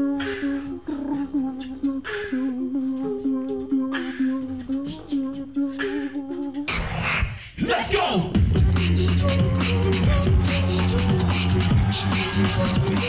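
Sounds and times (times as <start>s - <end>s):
voices humming together: 0.0s - 7.4s, 8.3s - 13.0s
loud live music: 8.2s - 13.0s
crowd noise: 8.7s - 13.0s.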